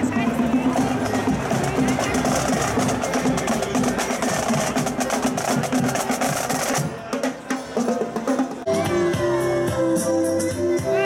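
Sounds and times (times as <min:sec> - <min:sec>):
marching drums playing: 0:00.0 - 0:08.7
music with held notes: 0:07.5 - 0:11.0.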